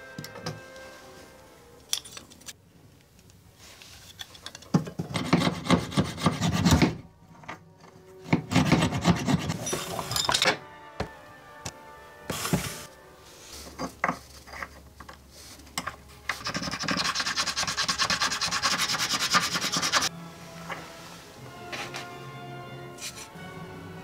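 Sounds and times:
saw rasping through wood: 5.1s - 7.0s, 16.4s - 20.1s.

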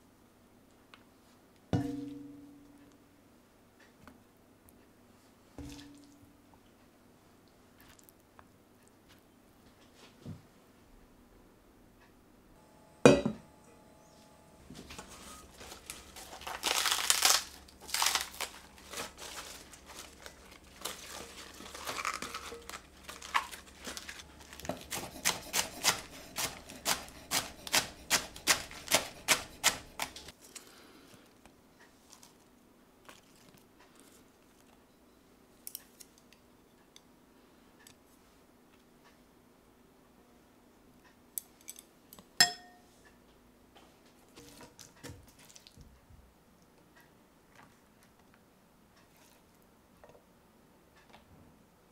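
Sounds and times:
lettuce crunching and rustling: 14.7s - 34.8s, 44.2s - 45.9s
knife chopping on wooden board: 24.7s - 30.3s.

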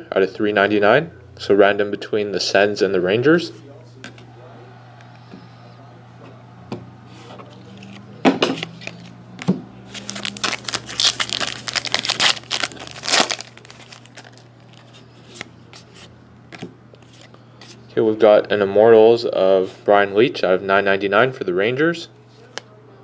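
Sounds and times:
cards clicking: 7.4s - 15.5s
wrapper crinkling: 9.8s - 15.5s
foil pack tearing: 9.9s - 15.0s.

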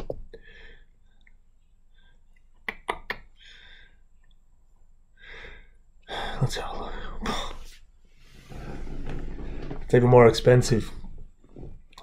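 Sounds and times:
soft breaths: 5.1s - 10.0s.

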